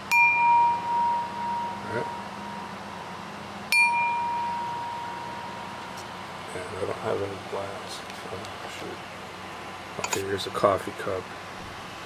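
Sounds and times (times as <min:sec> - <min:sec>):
crystal glass tapped ringing: 0:00.0 - 0:02.6, 0:03.7 - 0:06.0.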